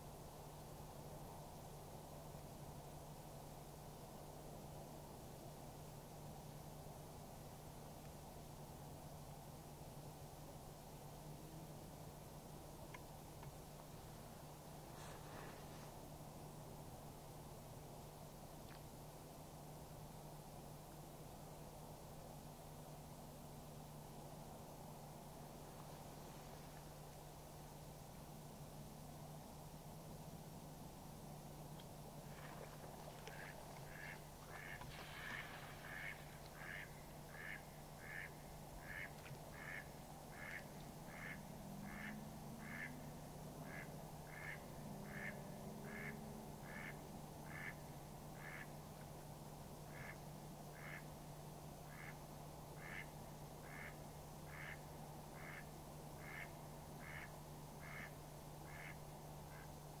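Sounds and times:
duck quacking: 33.3 - 42.9, 43.6 - 47.8, 48.4 - 48.7, 49.9 - 50.2, 50.8 - 51.0, 51.9 - 52.2, 52.8 - 54.8, 55.4 - 55.6, 56.2 - 58.1, 58.7 - 59.7.

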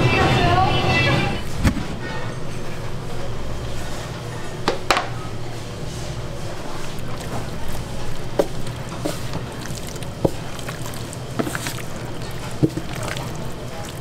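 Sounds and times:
steady low hum: 0.0 - 14.0
wet squelching of meat kneaded: 5.8 - 14.0.

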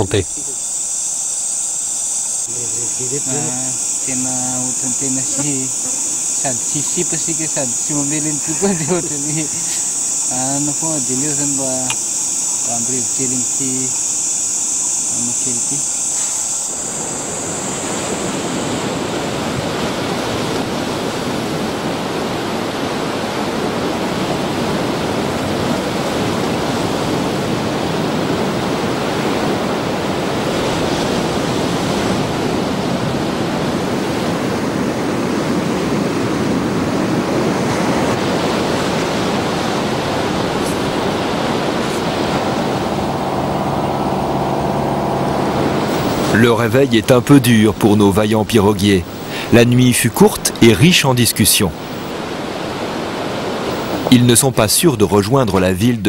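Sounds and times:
low droning hum: 0.0 - 20.6, 39.0 - 49.8, 51.7 - 52.9
high insect trill: 0.0 - 56.0
steady rushing noise: 36.8 - 54.4.

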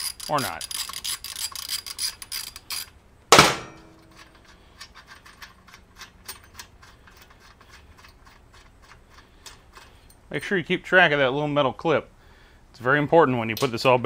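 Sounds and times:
ratchet wrench clicking: 0.0 - 3.0
metallic clank: 3.3 - 4.5.

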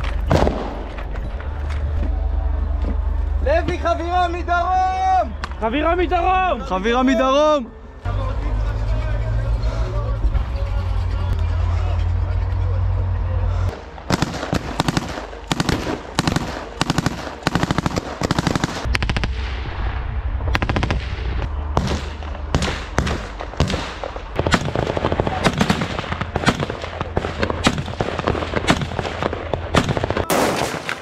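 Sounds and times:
single gunshots: 0.3 - 1.0, 21.8 - 31.0
automatic gunfire bursts: 14.1 - 18.9.

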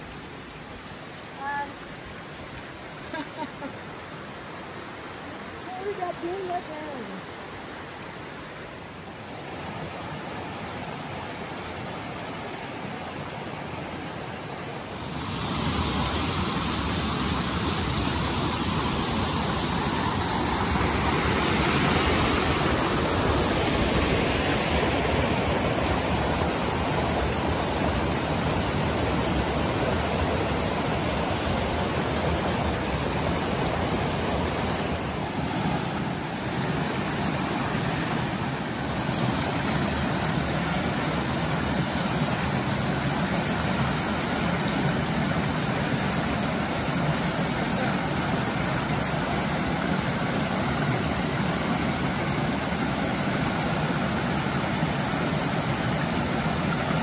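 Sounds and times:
water rushing over rock ledges: 0.0 - 57.0.

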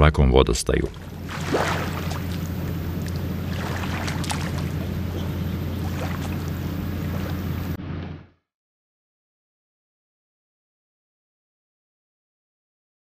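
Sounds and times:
outboard motor humming: 0.8 - 8.3.

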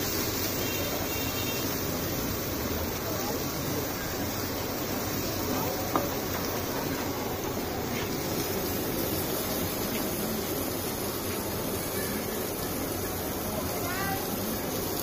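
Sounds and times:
gas burners hissing: 0.0 - 15.0.

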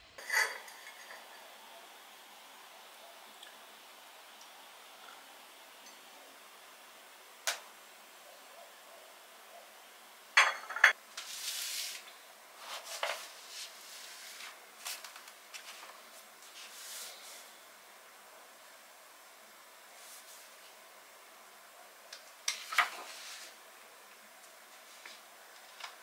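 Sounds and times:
dishes clinking: 0.2 - 1.6, 10.4 - 11.0
scraping and rustling: 11.2 - 17.5.

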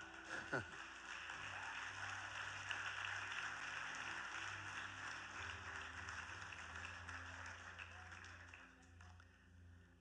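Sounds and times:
crowd clapping: 0.0 - 9.5.

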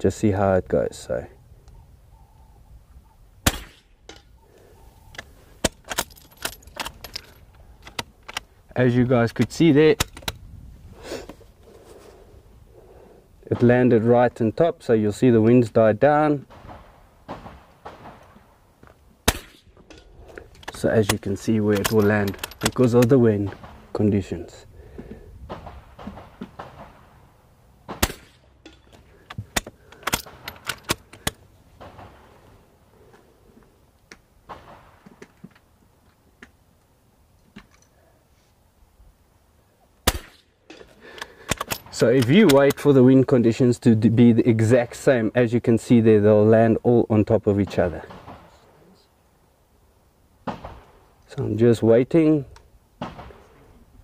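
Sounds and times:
rifle shot: 3.4 - 4.0, 16.5 - 18.5, 19.2 - 19.8, 25.5 - 27.2, 27.9 - 28.5, 31.8 - 32.3, 34.5 - 35.0, 40.0 - 40.5, 47.7 - 48.6, 50.4 - 51.0, 53.0 - 53.5
rifle bolt metallic clicks: 5.1 - 8.5, 9.4 - 10.4, 19.3 - 23.8, 28.0 - 31.4, 40.0 - 42.9.

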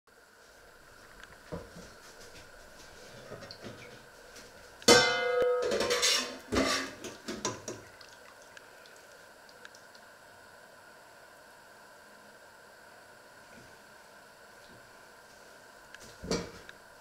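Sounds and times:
metal pot lid clanging: 4.9 - 7.0.

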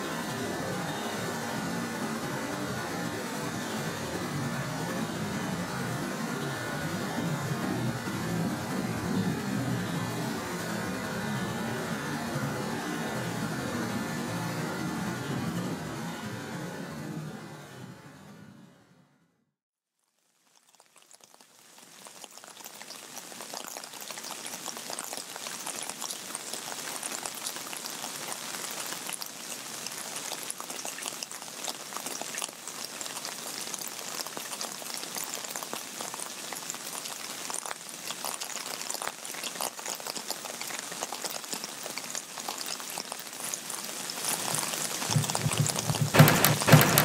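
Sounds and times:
rain on wet pavement: 20.8 - 47.0.

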